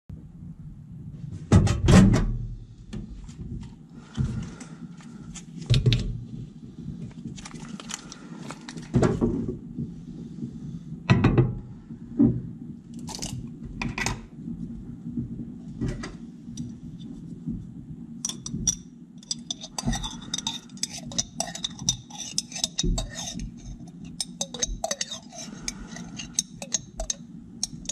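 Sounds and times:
glass bowl on glass turntable: 0:18.2 - 0:27.9
jar and spoon clinking: 0:18.3 - 0:27.9.

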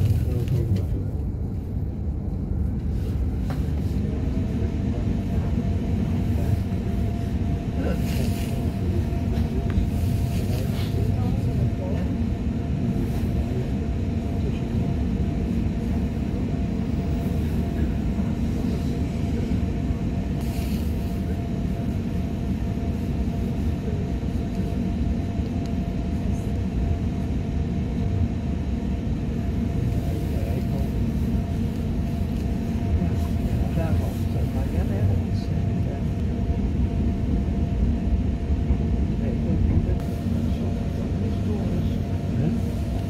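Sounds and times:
train wheels rumbling on track: 0:00.0 - 0:43.0.

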